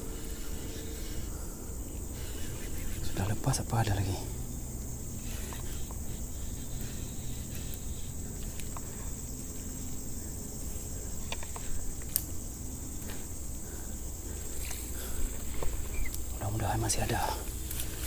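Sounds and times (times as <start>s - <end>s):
insects chirring: 0.0s - 18.0s
faint ticks: 5.1s - 10.0s, 10.6s - 16.4s, 17.0s - 18.0s.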